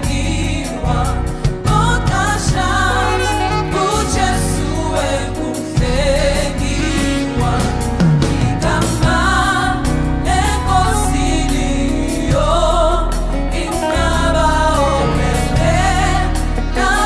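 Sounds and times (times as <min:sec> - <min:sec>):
band with bass and drums: 0:00.0 - 0:17.0
gospel choir singing: 0:00.0 - 0:17.0.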